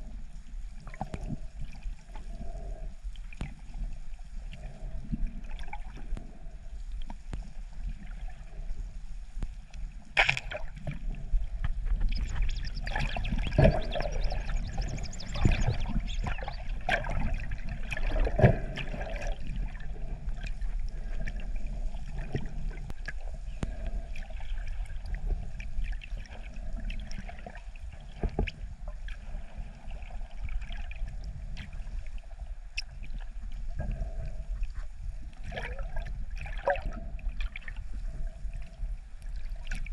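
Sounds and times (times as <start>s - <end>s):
water bubbling underwater: 9.8s - 39.9s.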